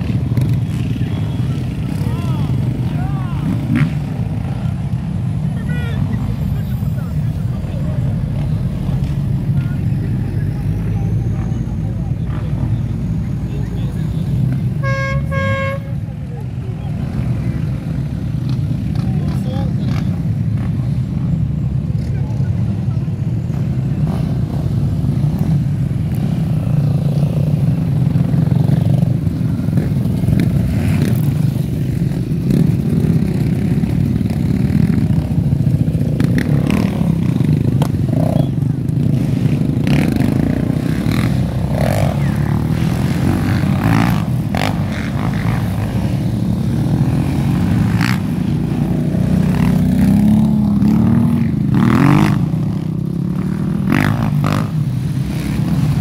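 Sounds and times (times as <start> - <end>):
quad bike revving: 0.0 - 5.1, 23.5 - 56.0
off-road engines idling: 0.0 - 56.0.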